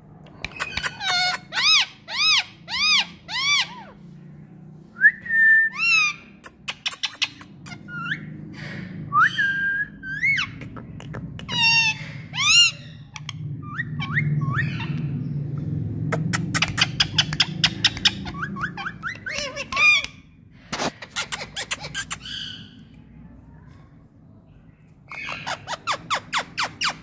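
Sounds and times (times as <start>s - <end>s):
low steady rumble: 0.0s - 27.0s
parakeets whistling: 0.5s - 4.0s, 5.7s - 10.6s, 11.5s - 15.2s, 16.2s - 20.1s, 25.1s - 27.0s.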